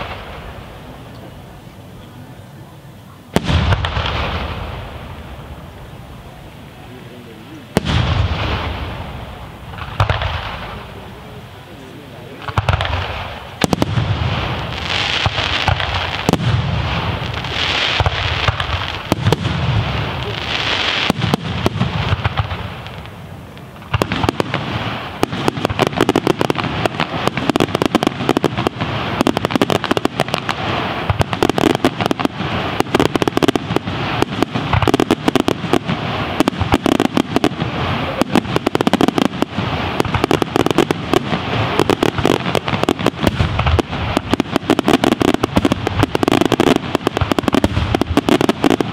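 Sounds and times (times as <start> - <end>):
fireworks bursting and crackling: 0.0 - 48.9.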